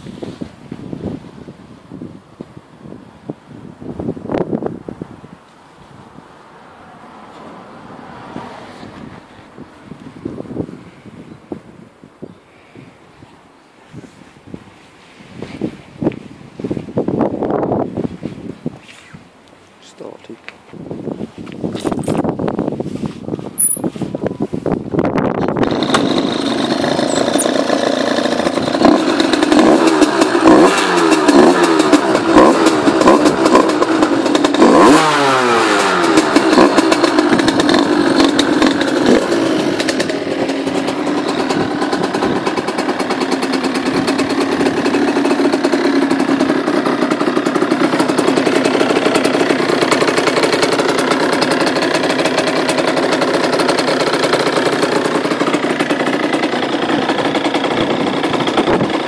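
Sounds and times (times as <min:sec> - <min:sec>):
two-stroke engine revving and idling: 0:23.6 - 0:23.9, 0:25.3 - 0:59.0.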